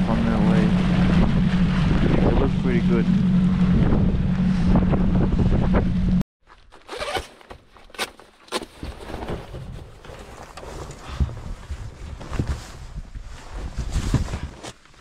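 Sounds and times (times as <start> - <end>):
boat motor running: 0.0 - 6.2
wind on microphone: 0.0 - 6.2, 11.0 - 14.6
zipper being pulled up: 6.8 - 7.4.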